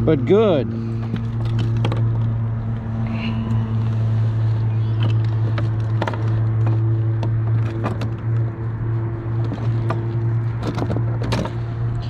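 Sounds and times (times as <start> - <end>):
low mechanical hum: 0.0 - 12.0
handling clicks and knocks: 0.9 - 2.9, 4.8 - 12.0.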